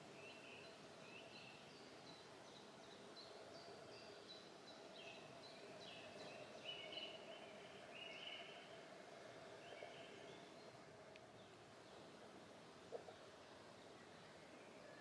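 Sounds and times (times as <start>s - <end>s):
bird chirping: 0.1s - 8.7s.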